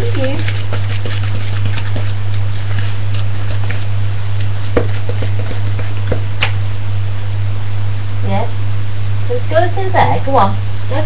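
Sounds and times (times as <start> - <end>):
steady low hum: 0.0 - 11.0
wooden spoon knocking on bowl: 4.7 - 6.3.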